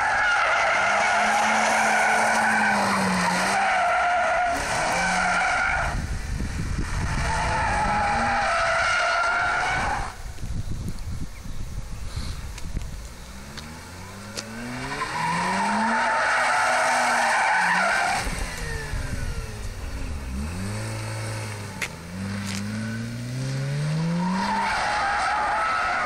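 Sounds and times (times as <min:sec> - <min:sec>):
rotary engine revving: 0:00.0 - 0:10.1, 0:13.2 - 0:26.0
tyres squealing on asphalt: 0:00.0 - 0:10.3, 0:13.3 - 0:26.0.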